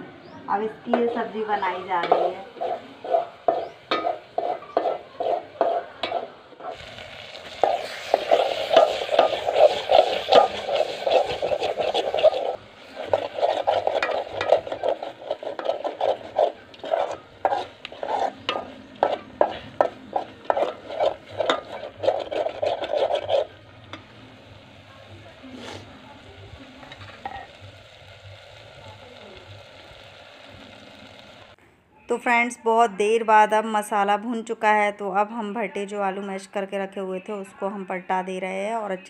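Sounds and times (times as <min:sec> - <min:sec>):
metal spoon scraping a pot: 0:00.9 - 0:24.2
frying sizzle: 0:00.9 - 0:31.6.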